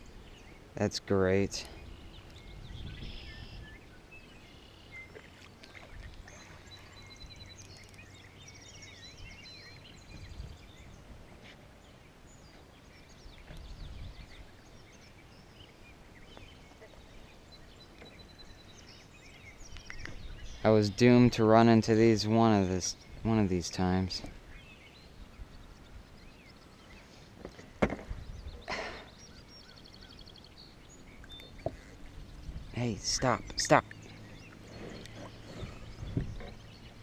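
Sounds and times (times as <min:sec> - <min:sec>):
birds chirping: 0:00.0 - 0:37.0
soft low thumps: 0:34.8 - 0:36.7.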